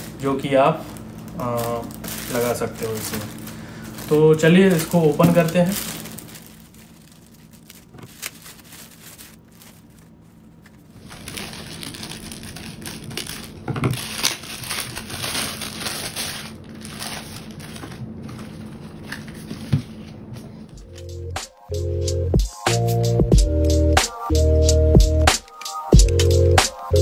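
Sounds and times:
packaging rustling and crinkling: 0.0s - 20.3s.

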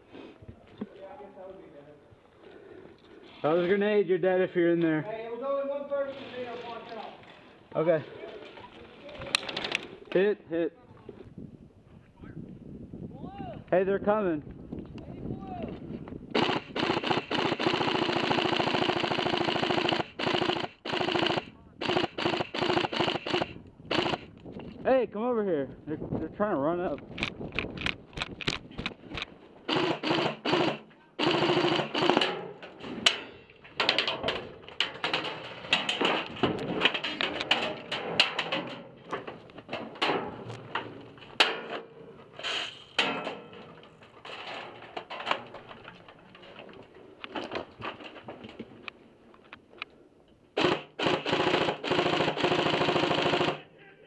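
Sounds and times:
airsoft guns firing: 16.4s - 24.3s, 29.7s - 32.5s, 50.6s - 53.7s.

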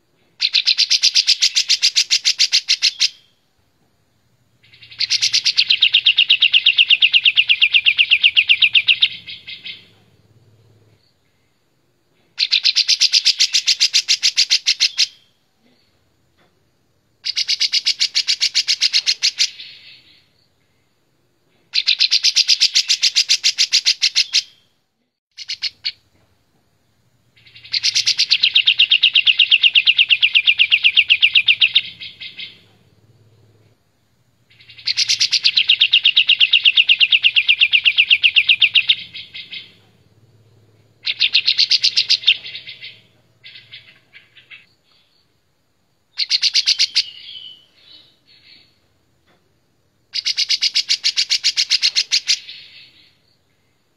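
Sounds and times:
bird singing rapid trills: 0.4s - 3.4s, 4.6s - 10.6s, 12.4s - 15.3s, 17.2s - 20.4s, 21.8s - 24.6s, 25.4s - 26.0s, 27.3s - 33.4s, 34.5s - 45.2s, 46.1s - 48.7s, 50.1s - 53.7s.

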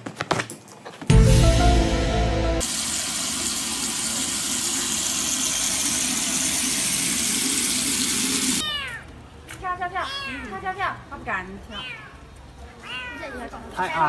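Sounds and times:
music: 1.1s - 2.7s
shower head spraying water on dog: 2.6s - 8.6s.

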